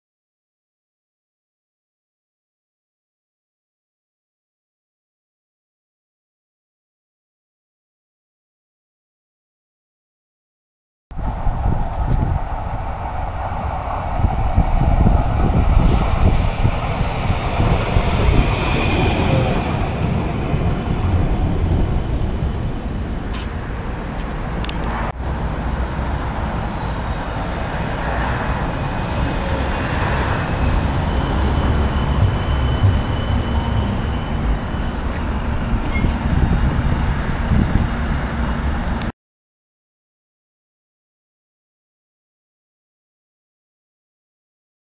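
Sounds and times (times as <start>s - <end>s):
tram wheels rumbling on rail: 11.1s - 39.1s
tram passing close by: 11.2s - 39.1s.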